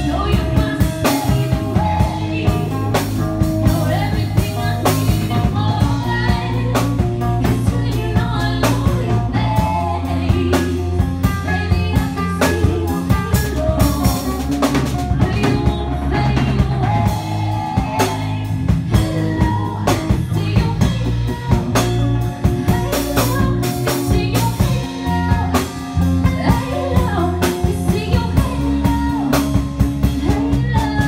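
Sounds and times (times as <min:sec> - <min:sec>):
drum kit with cymbals: 0:00.0 - 0:31.0
electric guitars: 0:00.0 - 0:31.0
woman singing: 0:00.0 - 0:31.0.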